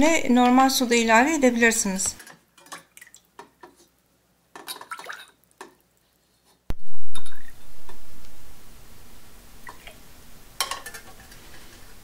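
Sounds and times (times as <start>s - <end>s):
liquid pouring: 4.6s - 5.8s.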